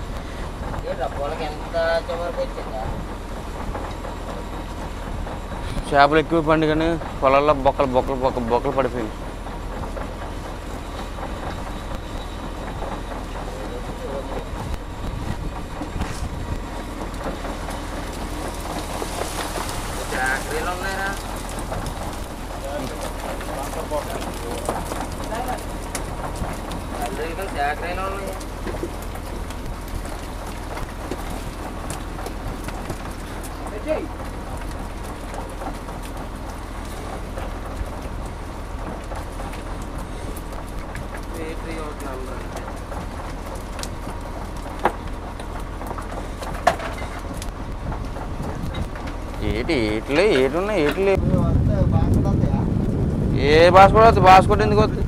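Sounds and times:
boat engine low rumble: 0.0 - 55.0
fish spilling onto deck: 18.2 - 25.8.

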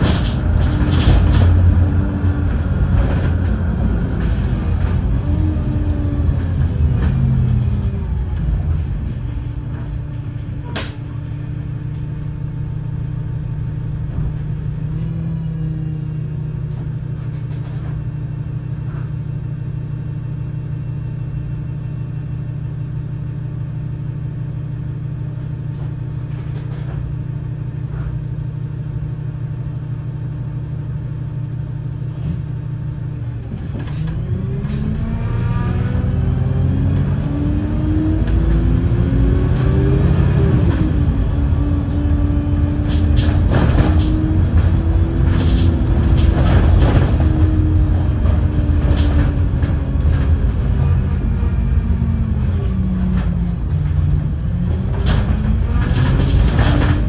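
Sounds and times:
bus accelerating away: 0.0 - 22.9, 31.2 - 57.0
bus engine idling: 0.0 - 33.9.

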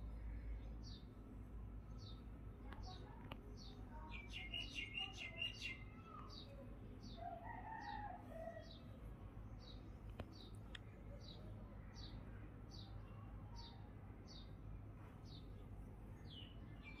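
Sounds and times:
small bird chirping: 2.0 - 7.2
distant rooster crowing: 7.2 - 8.8.

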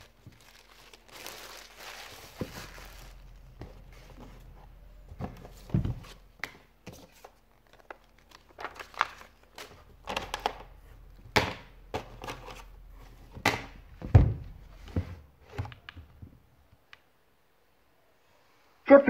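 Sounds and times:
paper wrapping rustling: 0.0 - 4.8, 6.9 - 10.7.

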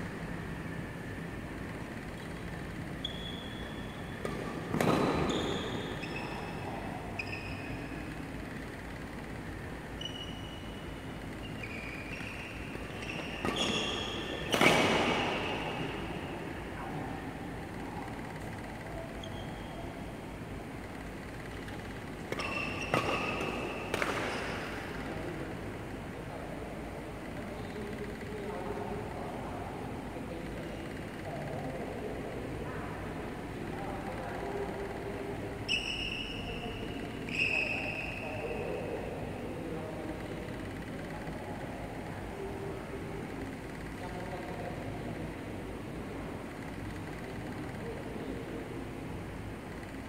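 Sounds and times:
sports shoes squeaking: 1.6 - 16.5, 17.7 - 20.1, 20.8 - 25.2, 35.7 - 38.8
racket hitting shuttlecock: 4.2 - 5.4, 12.1 - 16.0, 21.6 - 25.0.

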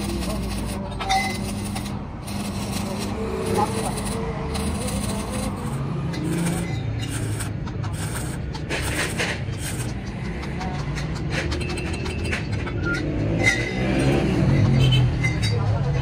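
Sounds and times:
welding arc crackling: 0.0 - 10.6.

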